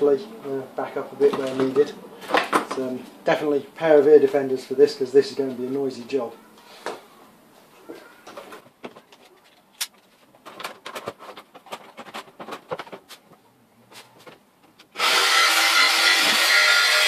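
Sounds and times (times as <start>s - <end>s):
handling clicks and knocks: 7.9s - 13.5s
electric jigsaw cutting: 15.0s - 17.0s.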